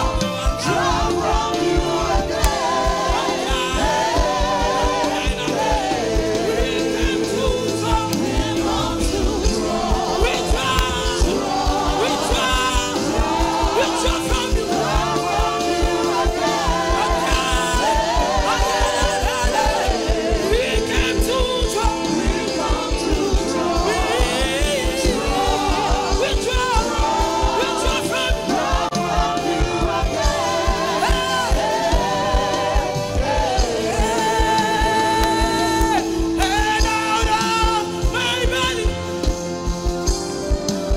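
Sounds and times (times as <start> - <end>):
band with bass guitar: 0.0 - 40.9
vocal group singing in harmony: 0.0 - 40.9.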